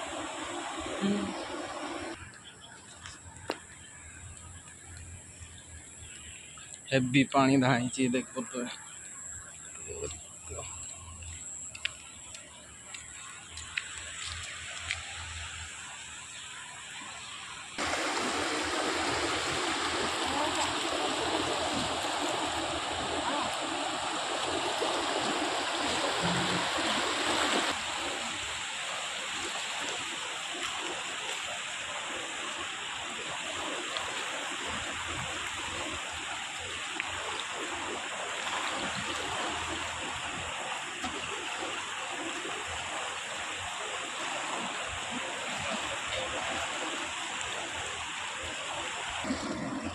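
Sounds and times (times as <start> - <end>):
river floodwater rushing: 0.0 - 2.3, 9.8 - 49.9.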